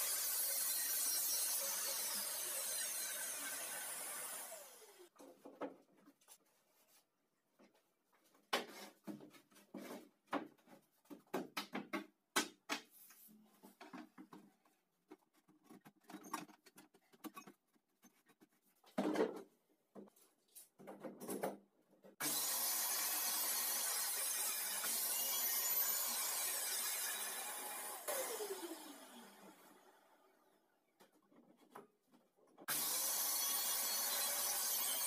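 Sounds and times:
circular saw running: 0.0s - 5.1s, 22.2s - 30.0s, 32.7s - 35.0s.

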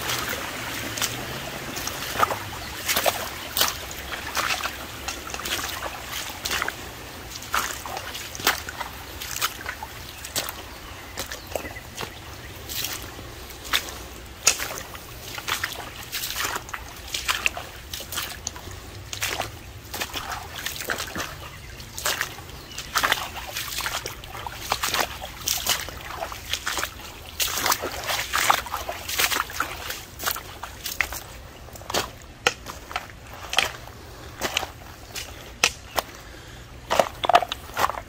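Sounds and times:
footsteps wading through water: 0.0s - 38.0s.

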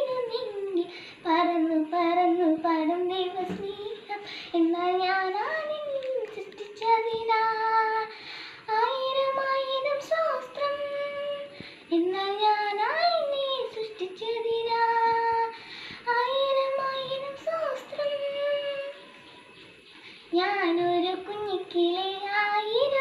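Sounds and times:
girl singing: 0.0s - 19.3s, 20.2s - 23.0s
girl breathing: 0.8s - 1.3s, 4.2s - 4.6s, 8.0s - 8.7s, 11.5s - 11.9s, 15.5s - 16.1s.

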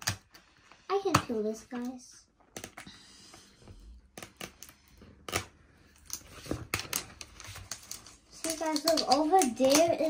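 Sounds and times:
packaging clicking and crinkling: 5.3s - 10.0s.

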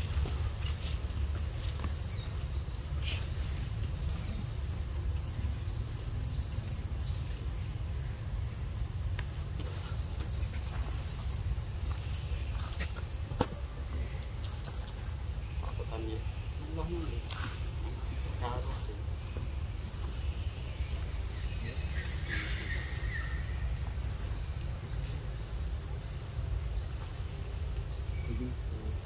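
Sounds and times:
insects trilling: 0.0s - 29.0s.

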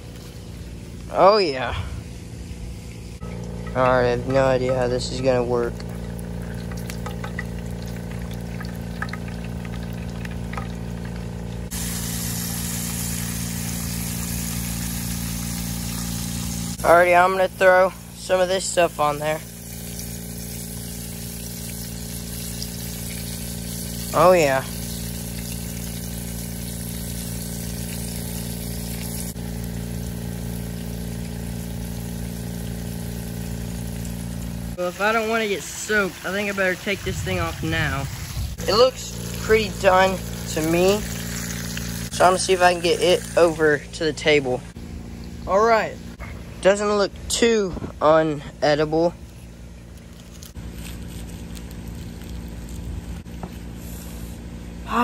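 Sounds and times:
low hum: 0.0s - 55.0s
fish frying in hot oil: 2.9s - 3.7s, 5.0s - 43.7s.

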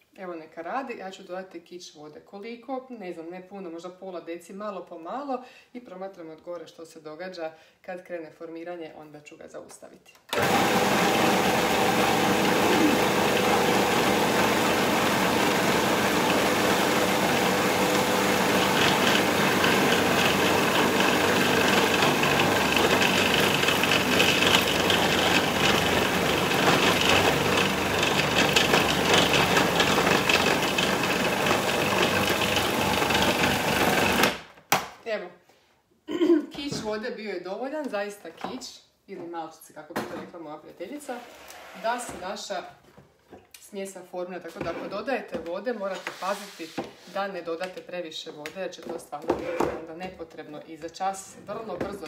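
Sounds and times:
food processor churning dough: 10.3s - 34.4s.

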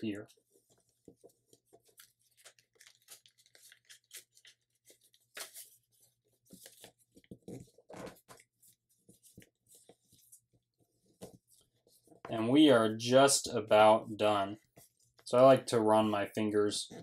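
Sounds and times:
paper crinkling and rustling: 0.3s - 12.2s.

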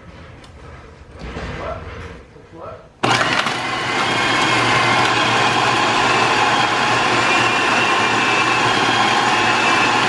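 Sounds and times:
food processor chopping: 3.0s - 10.0s.

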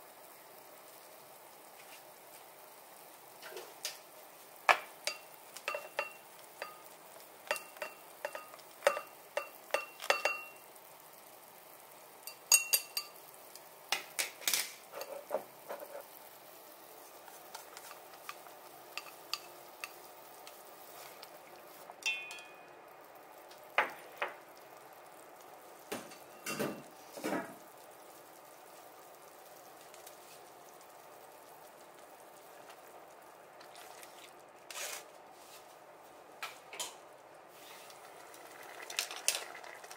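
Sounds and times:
broth simmering: 0.0s - 39.9s
faint steady hiss: 0.0s - 39.9s
ladle clinking in a pot: 5.0s - 10.6s, 12.3s - 13.2s, 18.9s - 20.0s, 22.0s - 22.7s.

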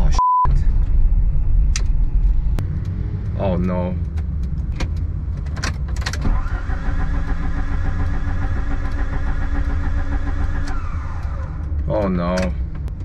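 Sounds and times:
starter motor cranking engine: 6.2s - 11.6s.

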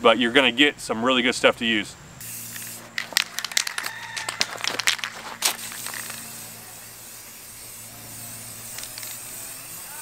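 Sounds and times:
spray can ball rattling: 2.2s - 10.0s
spray paint hissing: 2.2s - 10.0s.

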